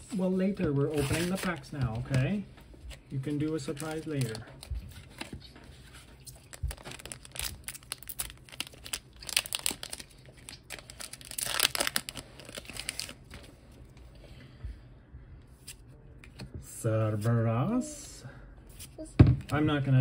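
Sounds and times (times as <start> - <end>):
foil wrapper crinkling: 6.2 - 13.4
foil wrapper tearing: 6.4 - 13.3.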